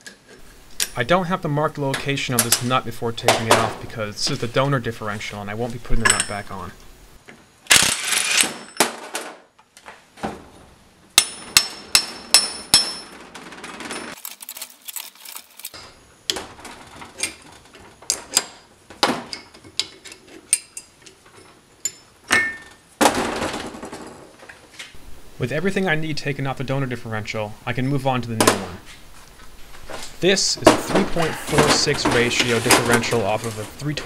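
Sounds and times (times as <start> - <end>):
metal tools clinking on steel: 6.0 - 6.5
wrench working gear puller: 14.1 - 15.8.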